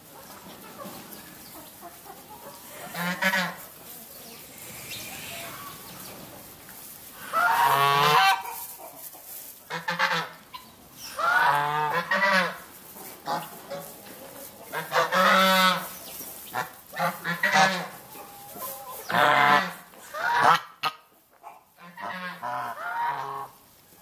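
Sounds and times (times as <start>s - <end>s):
poultry calling harshly: 0.6s - 6.5s, 7.1s - 23.6s.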